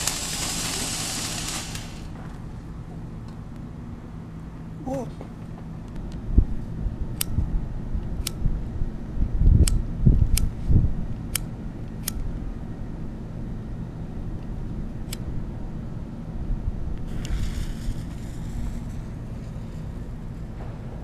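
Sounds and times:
wind rumble: 6.2s - 13.1s, 13.9s - 21.0s.

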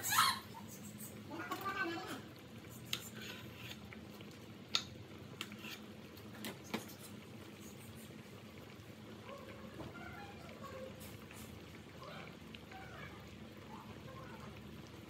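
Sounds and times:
water boiling in a pot: 0.0s - 15.0s
sharp pops and ticks: 2.8s - 5.6s.

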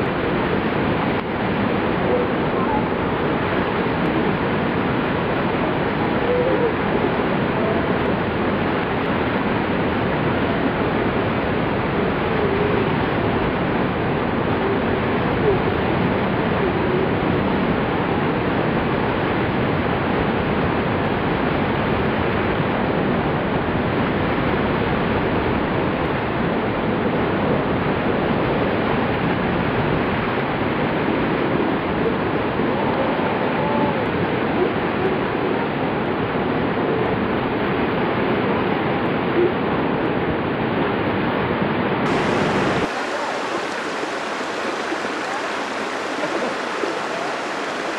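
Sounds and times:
waterfall rushing over rock: 0.0s - 34.5s, 42.0s - 47.9s.

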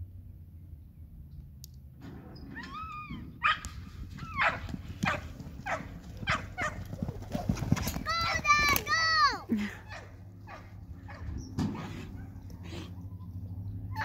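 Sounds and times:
dog yelping and whining: 4.2s - 4.6s
dog barking sharply: 4.4s - 6.8s.

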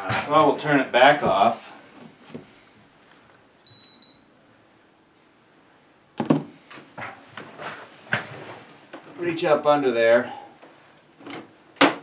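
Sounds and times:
short high beep: 3.7s - 4.3s.

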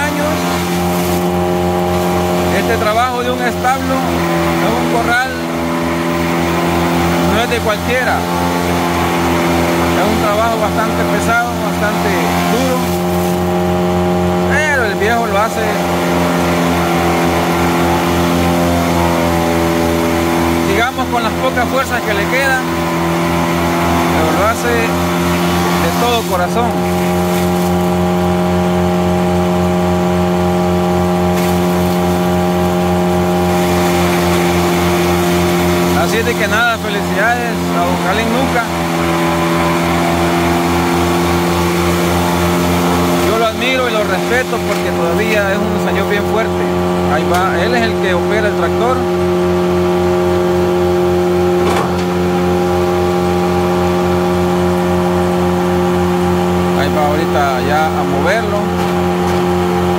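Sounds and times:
tractor driven forage chopper: 0.0s - 59.9s.

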